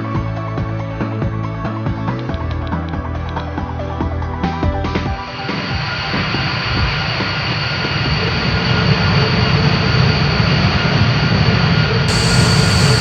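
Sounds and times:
heavy machinery drone: 0:12.0 - 0:13.0
faint high whine: 0:12.1 - 0:13.0.

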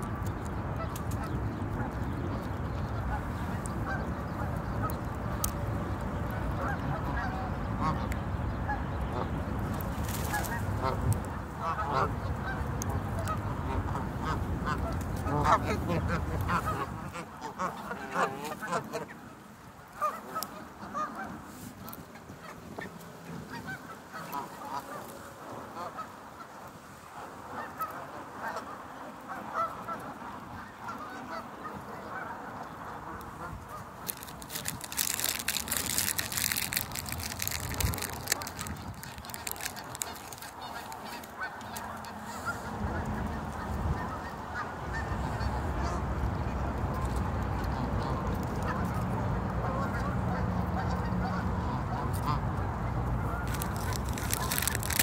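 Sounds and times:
crackly rustling: 0:00.0 - 0:19.0, 0:32.8 - 0:44.1, 0:53.0 - 0:55.0
geese honking: 0:00.7 - 0:19.3, 0:22.0 - 0:26.5, 0:27.6 - 0:46.0, 0:46.9 - 0:55.0.

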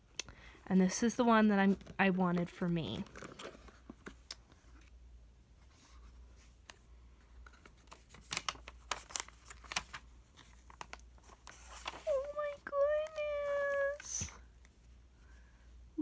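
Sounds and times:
paper rustling: 0:07.4 - 0:14.4.

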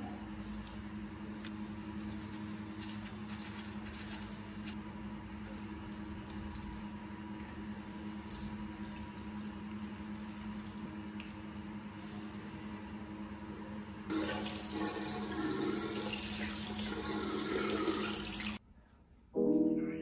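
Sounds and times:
low electrical hum: 0:00.0 - 0:20.0
toothbrush scrubbing: 0:01.8 - 0:04.8.

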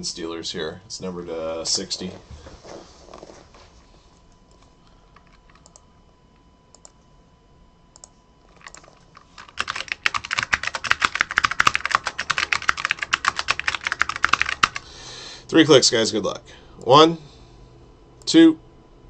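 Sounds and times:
typing on computer keyboard: 0:08.0 - 0:14.9.

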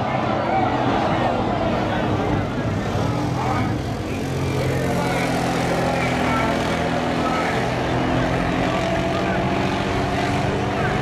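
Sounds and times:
drag car engine at high revs: 0:02.8 - 0:11.0.

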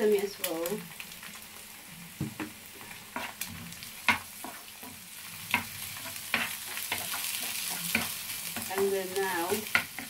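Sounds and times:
food sizzling in a frying pan: 0:00.0 - 0:10.0
wooden spatula scraping a pan: 0:02.8 - 0:10.0.

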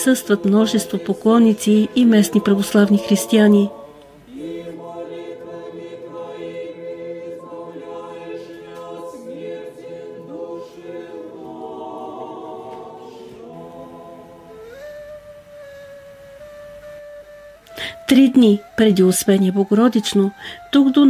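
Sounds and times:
women's choir singing a cappella: 0:00.0 - 0:14.7.

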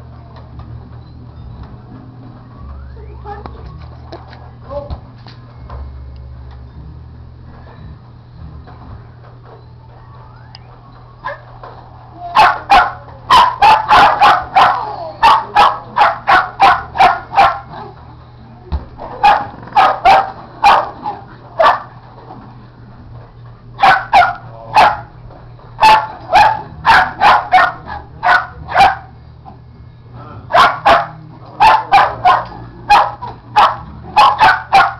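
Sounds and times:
dog barking: 0:12.3 - 0:17.8, 0:19.2 - 0:21.9, 0:23.8 - 0:25.1, 0:25.8 - 0:29.1, 0:30.5 - 0:34.9.

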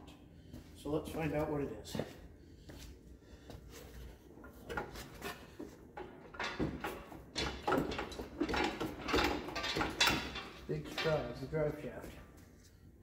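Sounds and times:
metal knocks and clunks: 0:04.4 - 0:11.8.

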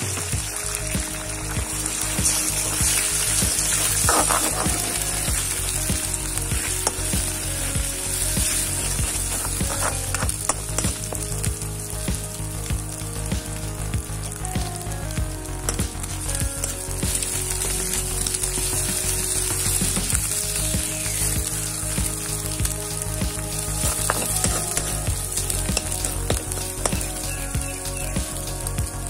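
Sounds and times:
egg sizzling in oil: 0:00.0 - 0:29.0
spatula scraping a wok: 0:02.2 - 0:10.8.

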